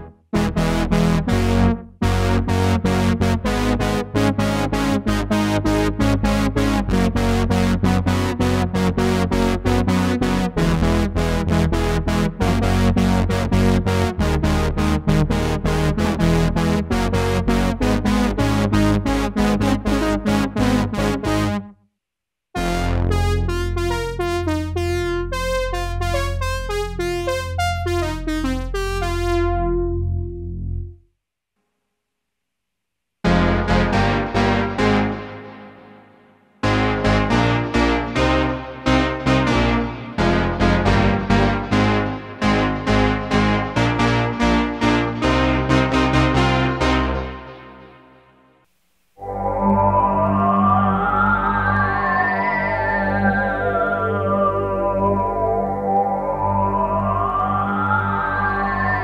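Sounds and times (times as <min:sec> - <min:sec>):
synthesizer brass chord stabs: 0:00.0 - 0:21.7, 0:22.6 - 0:31.0, 0:33.2 - 0:48.6
synthesizer melody over low notes: 0:00.0 - 0:21.7, 0:22.6 - 0:31.0, 0:33.3 - 0:48.3, 0:49.2 - 0:59.0
short synth brass chords: 0:22.6 - 0:31.0, 0:36.6 - 0:48.1.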